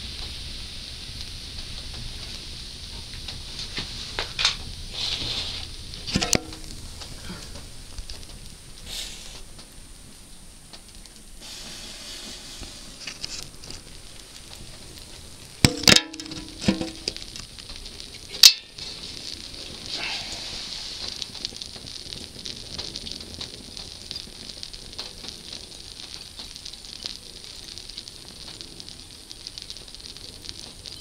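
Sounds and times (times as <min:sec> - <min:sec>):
matches hissing and crackling: 0:00.0 - 0:31.0
loud sharp cracks: 0:13.2 - 0:28.8.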